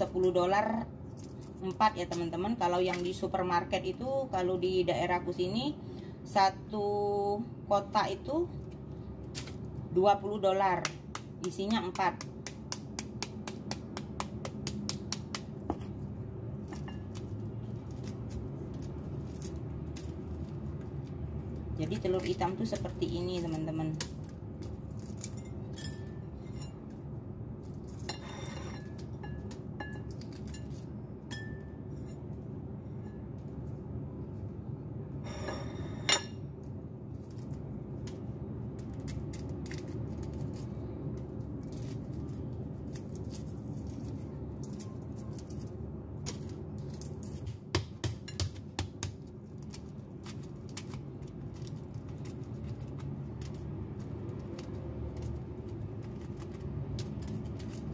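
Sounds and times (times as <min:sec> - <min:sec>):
egg shells cracking and peeling: 0:00.8 - 0:02.1, 0:08.6 - 0:09.9, 0:10.6 - 0:28.1, 0:28.8 - 0:31.3, 0:36.6 - 0:57.9.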